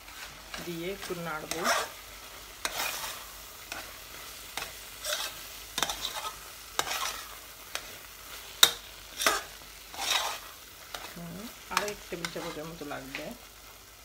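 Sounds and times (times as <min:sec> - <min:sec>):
spoon scraping saucepan: 0:00.1 - 0:02.0, 0:02.6 - 0:04.0, 0:04.6 - 0:08.0, 0:08.6 - 0:12.7.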